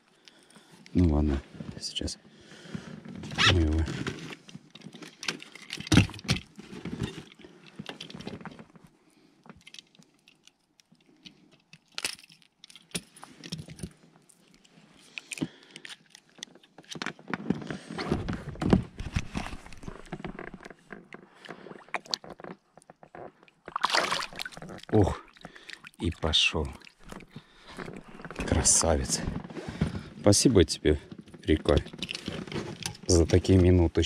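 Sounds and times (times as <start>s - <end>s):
metallic clicks and jingling: 9.6s - 17.0s, 31.5s - 33.4s.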